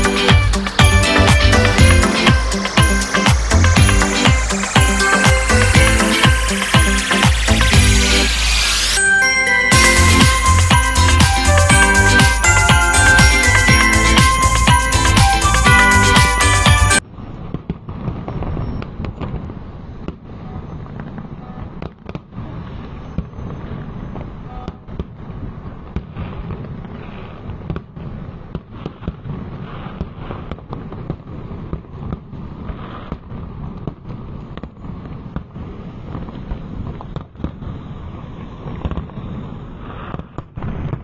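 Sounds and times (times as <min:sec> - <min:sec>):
jingly music track: 0:00.0 - 0:17.0
fireworks bangs and crackles: 0:00.0 - 0:41.0.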